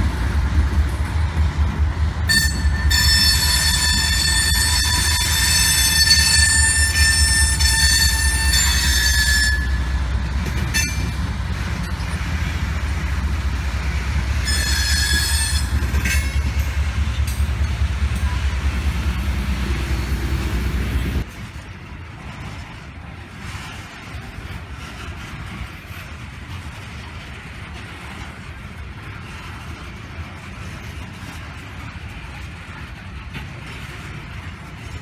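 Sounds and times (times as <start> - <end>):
freight train rumbling: 0.0 - 35.0
metallic wheel squeal: 2.3 - 10.0, 10.6 - 11.2, 14.4 - 16.4.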